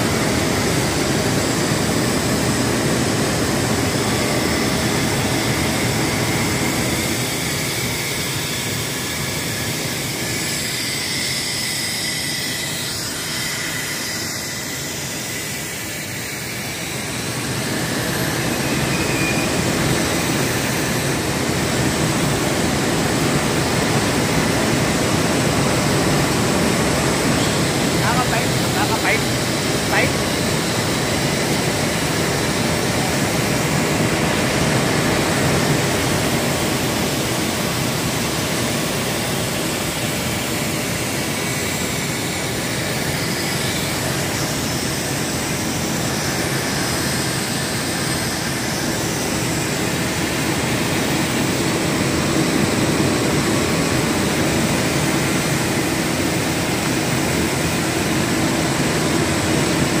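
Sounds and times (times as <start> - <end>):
factory machinery running: 0.0 - 60.0.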